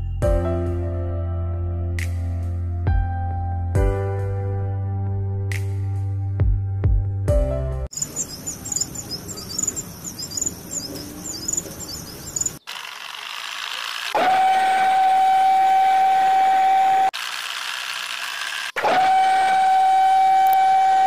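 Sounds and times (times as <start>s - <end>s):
rapid high chirping: 7.9s - 12.8s
loud steady high whine: 8.0s - 17.1s.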